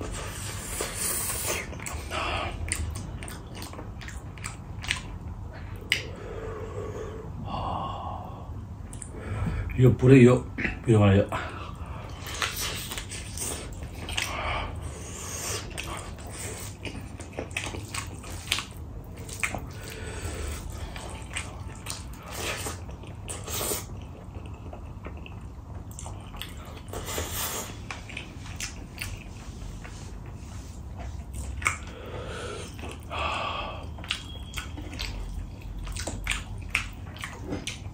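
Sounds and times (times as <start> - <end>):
wet chewing: 0.0 - 6.2, 11.7 - 37.9
lip smacks and slurps: 0.2 - 6.1, 15.4 - 31.9, 33.9 - 37.9.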